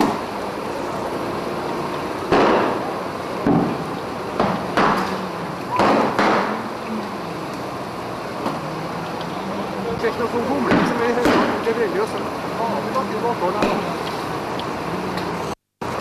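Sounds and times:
sharp bangs and crashes: 2.3 - 5.2.

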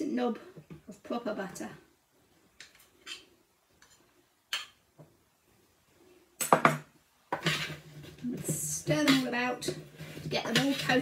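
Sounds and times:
spoon stirring squash chunks: 7.3 - 11.0.

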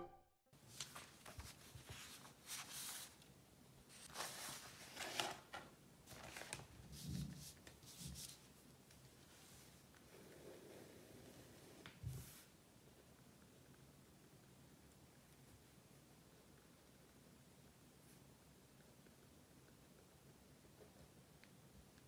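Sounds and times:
faint rustling and handling: 0.6 - 12.6.

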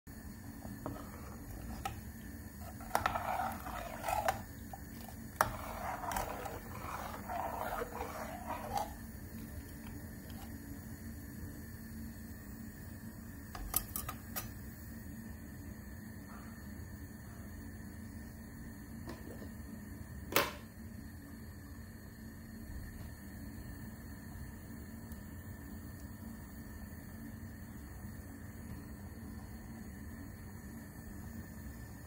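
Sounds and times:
curry boiling: 0.1 - 12.2
ladle scraping metal pot: 0.8 - 2.0, 2.6 - 9.5.

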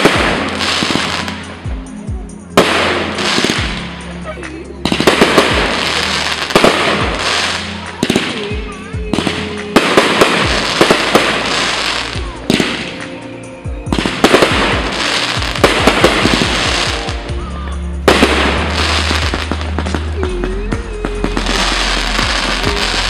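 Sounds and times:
fireworks bangs and crackling: 0.0 - 23.0
music with low notes: 0.0 - 23.0.

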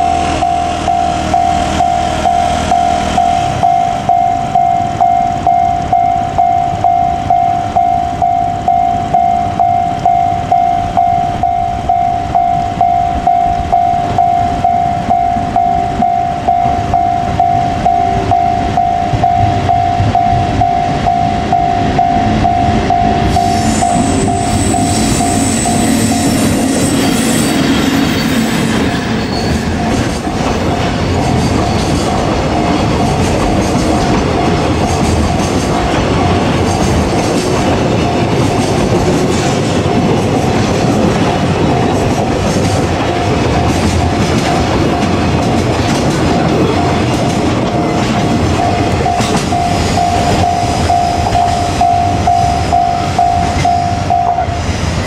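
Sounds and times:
level crossing alarm bell ringing: 0.0 - 30.0, 47.7 - 54.6
train wheels on rails: 0.0 - 55.0.

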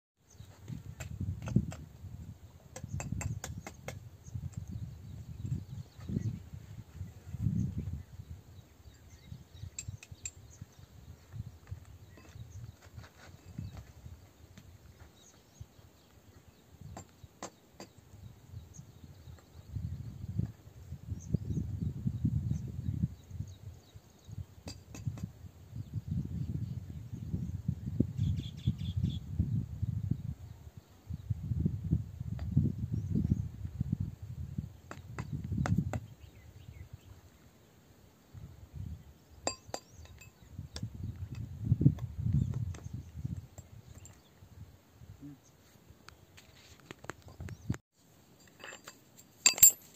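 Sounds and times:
gusty wind rumble on microphone: 0.3 - 15.0, 18.2 - 37.2, 40.3 - 45.2.

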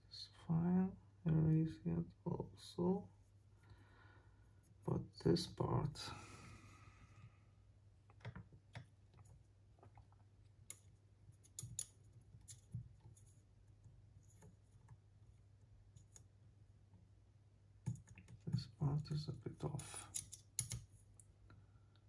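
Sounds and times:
clicks and taps of small parts: 10.6 - 13.2, 17.8 - 18.7, 19.8 - 21.3.

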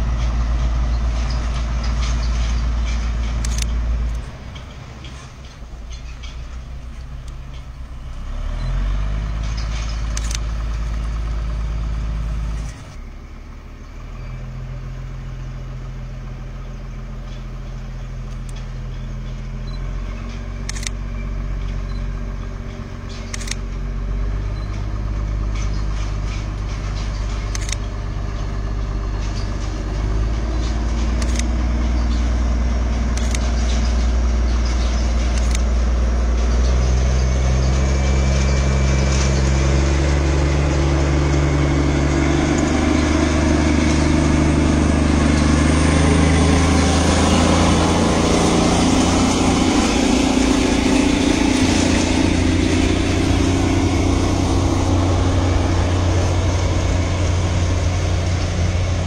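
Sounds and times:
train engine running: 0.0 - 59.0
sharp clicks: 1.6 - 11.1, 18.2 - 18.8, 20.6 - 21.0, 23.1 - 23.8, 25.6 - 28.5, 30.9 - 32.2, 33.1 - 34.0, 34.6 - 35.8.

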